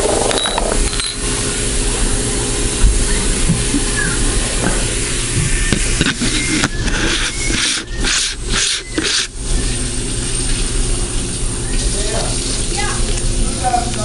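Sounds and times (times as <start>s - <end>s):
hands rubbing against camera: 5.8s - 9.3s.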